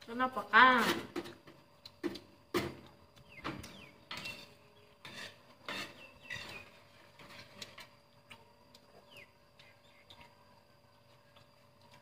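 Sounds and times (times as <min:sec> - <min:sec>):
people eating with hands: 0:01.2 - 0:12.0.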